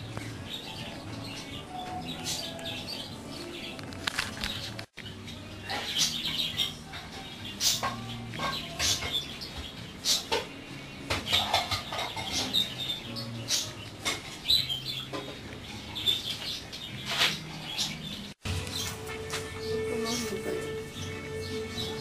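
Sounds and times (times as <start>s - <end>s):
high bird chirps: 4.6s - 22.0s.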